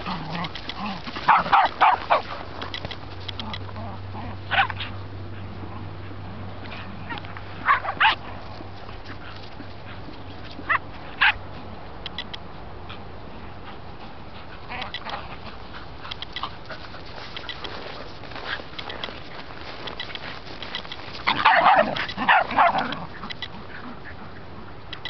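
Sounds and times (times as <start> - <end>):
dogs barking: 0.0 - 5.0, 6.7 - 8.4, 10.6 - 11.4, 20.8 - 24.8
dog yipping: 1.3 - 2.2, 4.5 - 4.9, 7.1 - 8.2, 21.2 - 23.4.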